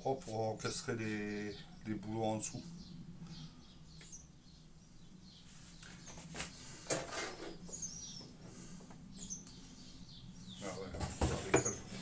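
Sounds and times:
faint bird chirps: 0.0 - 6.8, 7.4 - 12.0
wooden shelf scraping and knocking: 6.9 - 7.7, 10.9 - 12.0.

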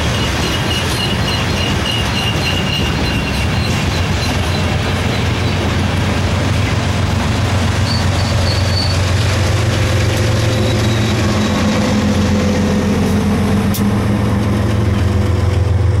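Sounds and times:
diesel locomotive engine droning: 0.0 - 16.0
high squeal: 7.8 - 9.2, 10.4 - 12.0.

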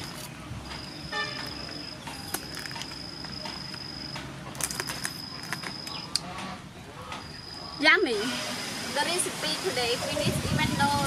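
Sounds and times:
insects trilling: 0.0 - 6.2.

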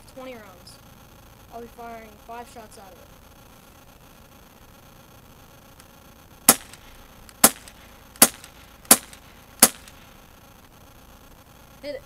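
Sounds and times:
air pistol shots cracking: 6.4 - 10.2.

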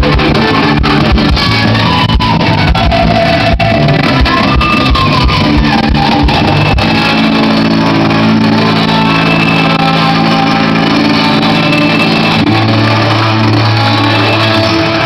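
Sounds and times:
live rock band playing: 0.0 - 15.0.

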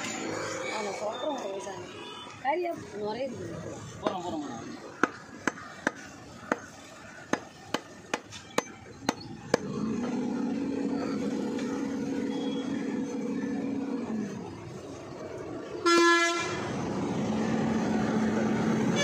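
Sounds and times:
cleaver chopping meat on wood: 5.0 - 9.8
long horn blast: 15.8 - 16.7.

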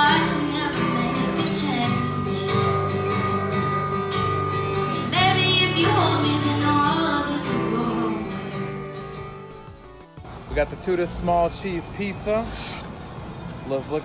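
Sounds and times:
woman singing: 0.0 - 2.7, 4.8 - 8.7
acoustic guitar strumming: 0.0 - 13.5.

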